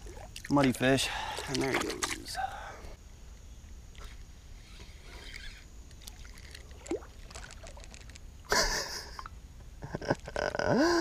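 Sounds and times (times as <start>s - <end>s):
faint water sloshing: 0.0s - 3.0s, 3.6s - 8.3s.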